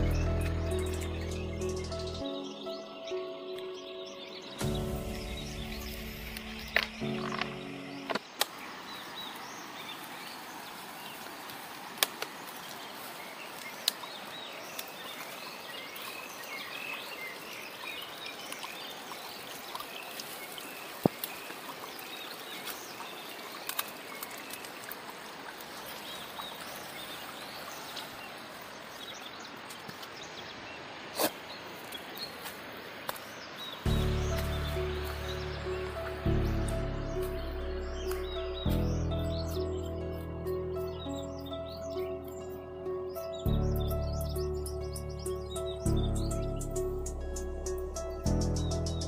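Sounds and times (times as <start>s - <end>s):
background music: 0.0s - 8.2s, 33.9s - 49.0s
flowing river water: 0.0s - 48.8s
birds chirping: 0.0s - 49.0s.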